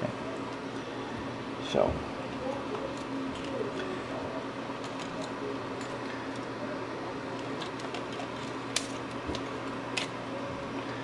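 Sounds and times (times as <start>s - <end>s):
steady low hum: 0.0s - 11.0s
laptop parts clicking and rustling: 4.8s - 6.5s, 7.4s - 10.2s.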